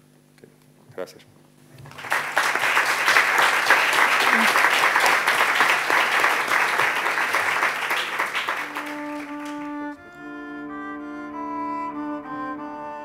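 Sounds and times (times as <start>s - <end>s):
audience applauding: 1.8s - 10.0s
music with long held notes: 7.1s - 13.0s.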